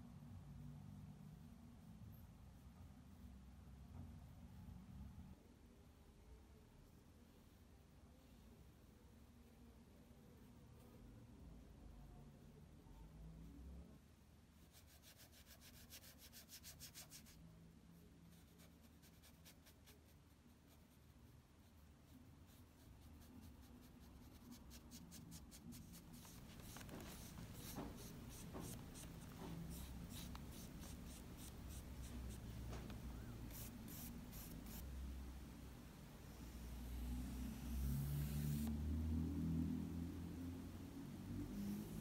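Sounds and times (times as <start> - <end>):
brush strokes on paper: 14.5 - 35.0.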